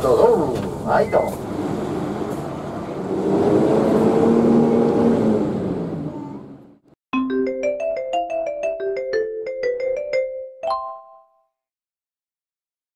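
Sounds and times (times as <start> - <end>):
street traffic: 0.0 - 7.0
marimba-like jingle: 7.2 - 11.5.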